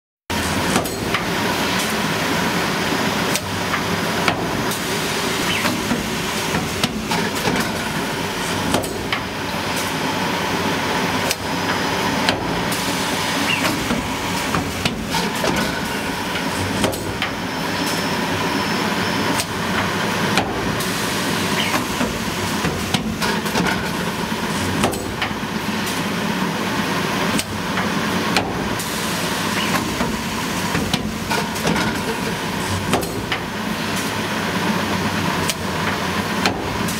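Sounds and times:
filling machine running: 0.3 - 36.9
sharp mechanical clicks and knocks: 0.4 - 1.9, 8.6 - 9.9, 13.5 - 17.4, 19.4 - 20.7, 21.6 - 24.0, 24.7 - 26.0, 29.6 - 34.1, 35.4 - 36.9.

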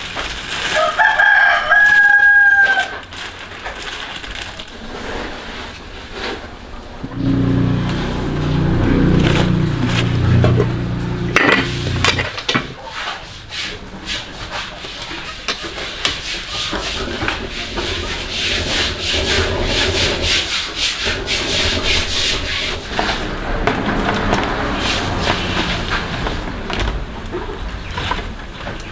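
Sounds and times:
repeated scraping strokes: 4.9 - 26.7.

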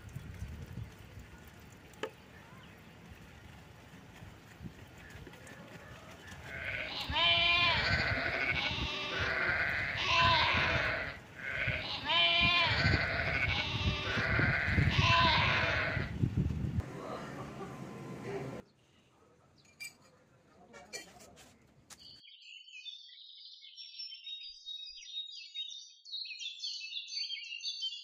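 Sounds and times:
goats bleating: 5.8 - 16.1.

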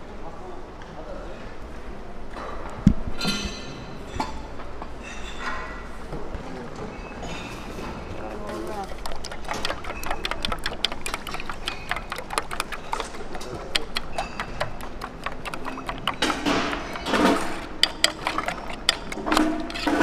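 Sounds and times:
spoon beating eggs in metal bowl: 8.2 - 20.0.

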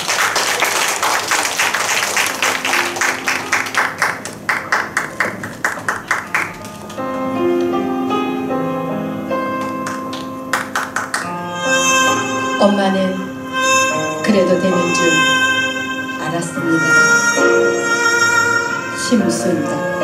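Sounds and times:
audience applauding: 0.0 - 7.4, 9.6 - 11.4
soft instrumental music: 1.8 - 20.0.

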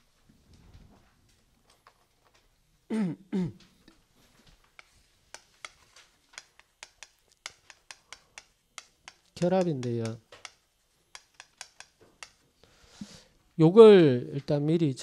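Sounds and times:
chalk clicking on chalkboard: 4.6 - 12.4.

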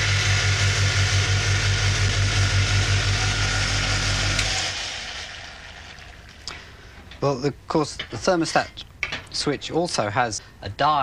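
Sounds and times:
refrigerator compressor humming: 0.0 - 6.2.

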